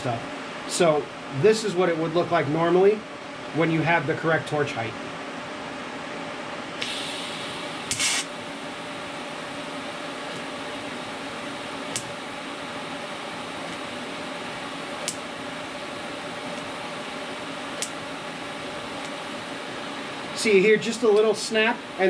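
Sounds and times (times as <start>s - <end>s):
machine fan hum: 0.0s - 22.0s
welding arc snap: 6.8s - 8.4s, 11.9s - 12.2s, 13.6s - 13.9s, 15.0s - 15.4s, 17.7s - 18.1s
crackling hiss of welder: 6.8s - 21.8s
welding arc running: 6.8s - 22.0s.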